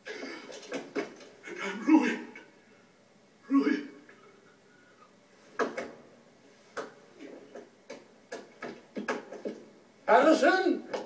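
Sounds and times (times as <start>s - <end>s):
sharp knocks and taps: 6.8s - 9.7s.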